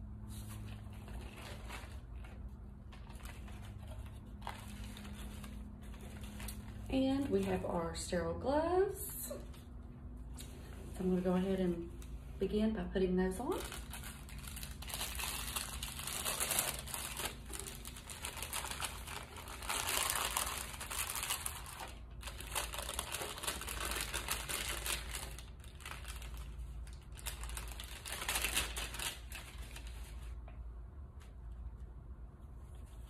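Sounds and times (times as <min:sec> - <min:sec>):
paper wrapper crinkling: 0:00.3 - 0:07.7, 0:13.4 - 0:30.6.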